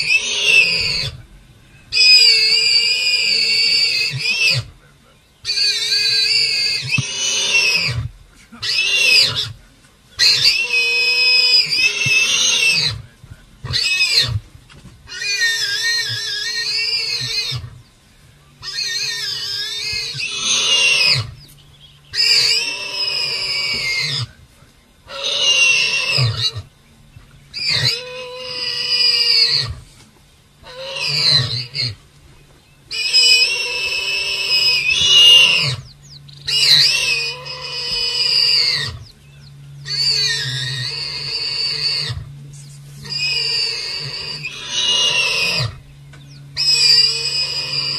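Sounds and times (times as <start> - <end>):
animal squealing: 0.0 - 1.2, 1.9 - 4.8, 5.4 - 9.6, 10.2 - 13.0, 13.6 - 14.4, 15.1 - 17.8, 18.6 - 21.5, 22.1 - 24.4, 25.1 - 26.7, 27.5 - 29.9, 30.6 - 32.0, 32.9 - 39.2, 39.8 - 42.3, 42.9 - 45.9, 46.5 - 47.9.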